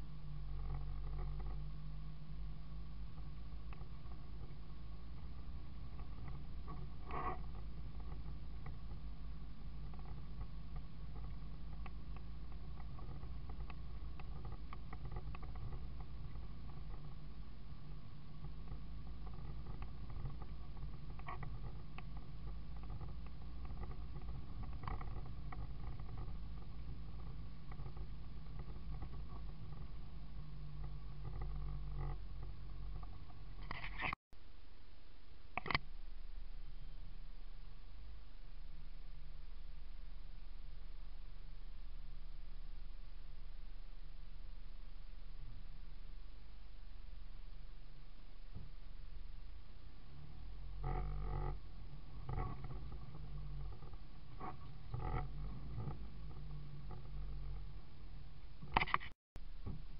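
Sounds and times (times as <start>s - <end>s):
engine and road drone: 0.0s - 34.2s, 47.9s - 59.9s
faint steady hum: 0.0s - 59.9s
small clicks and rattles: 0.2s - 2.1s, 3.0s - 34.2s, 50.2s - 57.8s, 58.6s - 59.8s.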